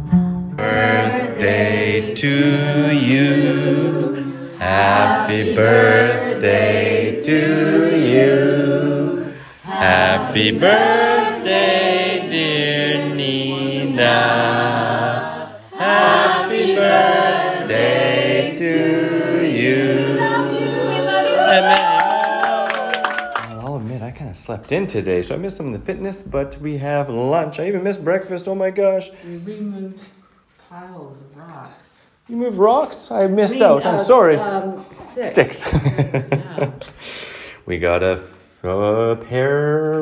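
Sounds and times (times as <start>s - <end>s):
group of people singing: 0.6s - 23.0s, 38.6s - 40.0s.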